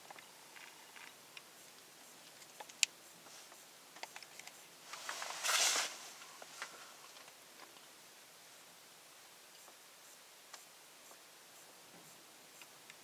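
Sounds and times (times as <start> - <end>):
small clicks and ticks: 0.0 - 5.2, 10.5 - 11.7, 12.5 - 13.0
brief rustle: 2.5 - 7.4.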